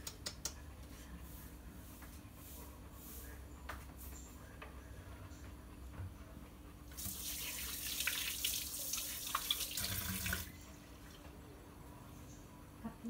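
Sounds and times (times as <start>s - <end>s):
water running: 6.9s - 10.6s.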